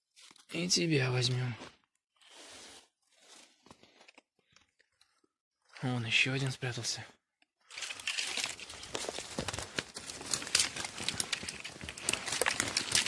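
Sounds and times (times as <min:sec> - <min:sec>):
dry leaves crunching and rustling: 0:07.7 - 0:13.0.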